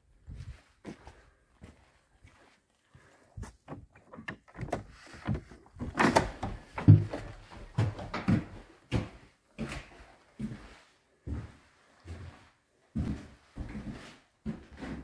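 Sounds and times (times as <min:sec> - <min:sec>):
footsteps on wooden floor: 0:00.2 - 0:15.0
metal latch clicking and rattling: 0:03.8 - 0:06.8.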